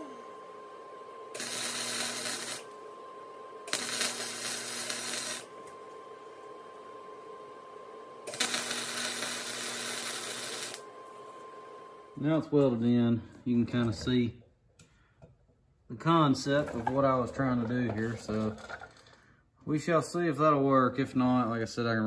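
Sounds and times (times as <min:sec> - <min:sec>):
arc welding crackling hiss: 0:01.3 - 0:02.8, 0:03.6 - 0:05.7, 0:08.2 - 0:10.9.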